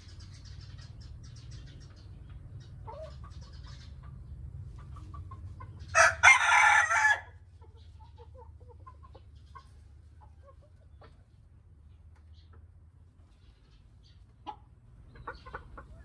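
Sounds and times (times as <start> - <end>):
chickens clucking: 0.0 - 16.0
cockerel crowing: 5.9 - 7.4.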